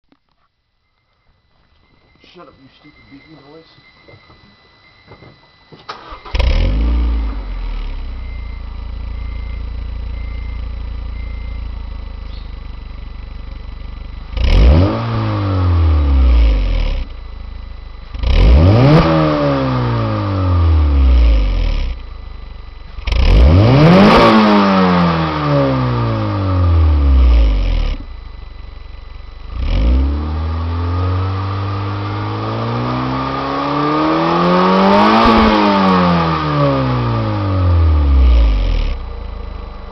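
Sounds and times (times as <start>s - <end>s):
car engine starting: 5.8s - 39.9s
car engine idling: 5.9s - 39.9s
car engine revving: 5.9s - 39.9s.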